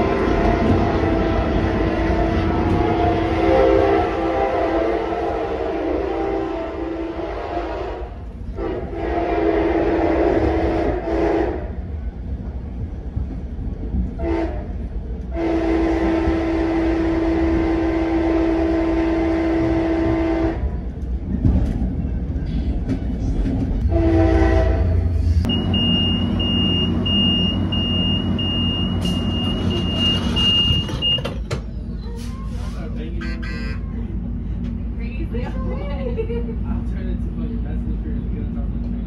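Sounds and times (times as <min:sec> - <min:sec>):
train horn blasts: 0:00.0 - 0:11.8, 0:14.2 - 0:20.8, 0:23.8 - 0:25.5, 0:33.2 - 0:33.9
moving train rumble: 0:00.0 - 0:39.0.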